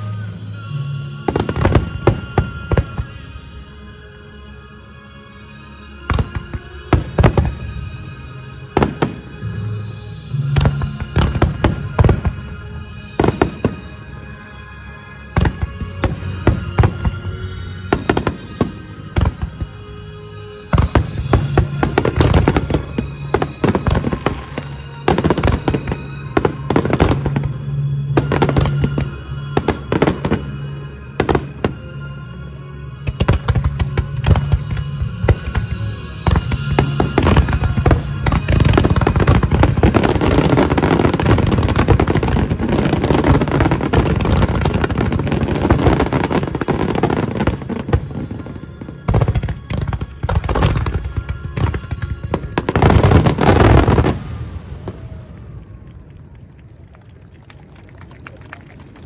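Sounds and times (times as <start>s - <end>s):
music: 0.0s - 59.0s
fireworks bursting: 8.7s - 14.0s, 15.3s - 30.6s, 33.0s - 57.1s.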